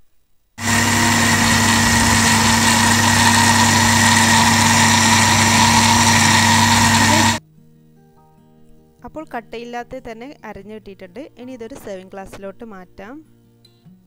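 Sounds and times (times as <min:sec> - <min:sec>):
blender motor whine: 0:00.6 - 0:07.4
liquid churning: 0:00.6 - 0:07.4.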